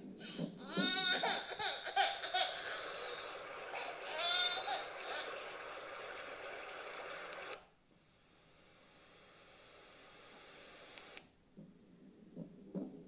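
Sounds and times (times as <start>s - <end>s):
steady hiss: 0.0s - 11.4s
baby crying through phone speaker: 0.2s - 5.6s
clicks: 5.2s - 7.7s, 10.8s - 11.7s.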